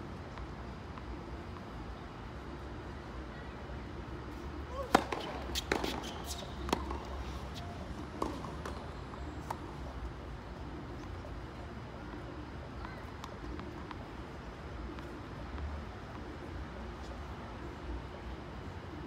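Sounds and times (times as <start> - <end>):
ball bouncing on hard court: 4.7 - 8.8
tennis ball struck with racket: 4.7 - 8.8.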